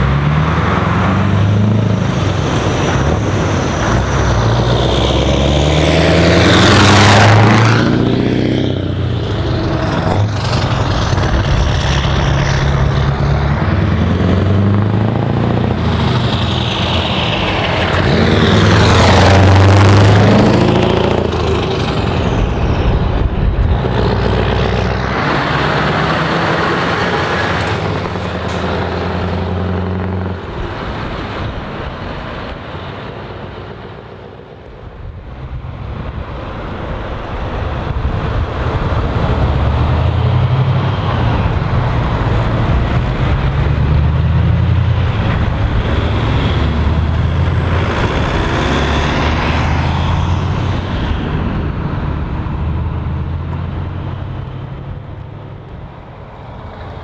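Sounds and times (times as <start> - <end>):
diesel truck engines pulling away: 0.0 - 57.0
truck accelerating through gears: 0.0 - 57.0.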